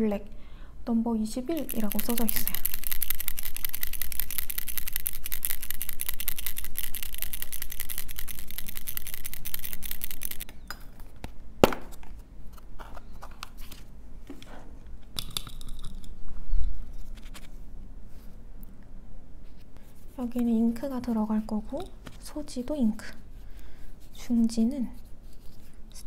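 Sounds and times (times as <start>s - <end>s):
bottle shaken rattling: 1.5s - 10.5s.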